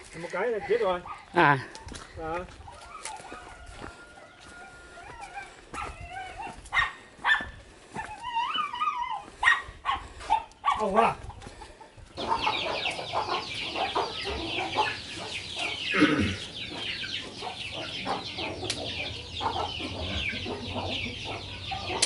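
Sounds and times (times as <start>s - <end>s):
chickens cheeping: 0.4s - 22.0s.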